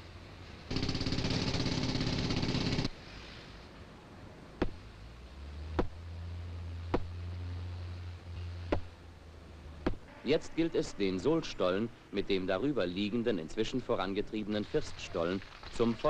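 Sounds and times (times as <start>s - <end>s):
low steady hum: 0.0s - 16.0s
sharp knocks: 4.6s - 4.8s, 5.8s - 6.0s, 6.9s - 7.1s, 8.7s - 8.9s, 9.8s - 10.1s.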